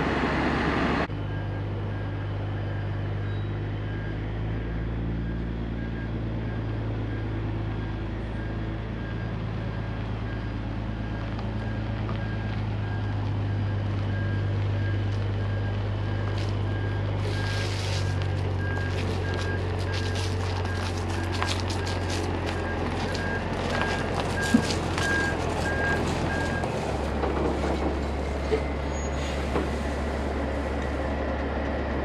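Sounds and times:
diesel engine running: 0.0s - 32.0s
faint high beeps: 1.1s - 4.2s.

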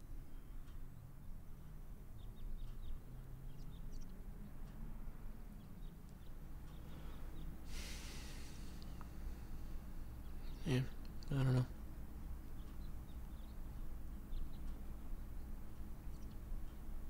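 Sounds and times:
steady low hum: 0.0s - 17.0s
burst of hiss: 7.7s - 8.8s
faint high chirps: 12.4s - 16.9s.

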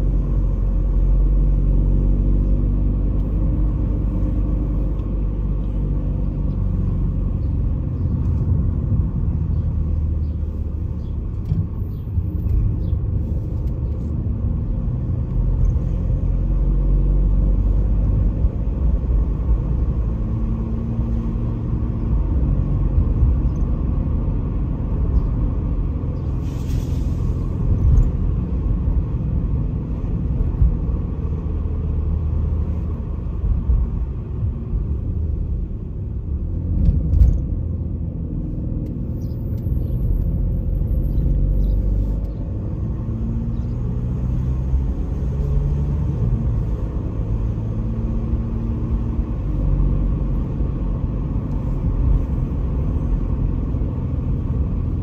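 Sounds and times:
engine and tyre rumble: 0.0s - 55.0s
short hiss: 26.4s - 27.4s.

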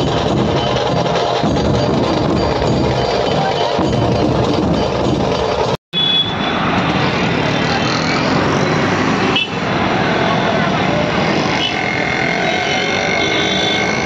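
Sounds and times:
music with heavy drums: 0.0s - 5.8s.

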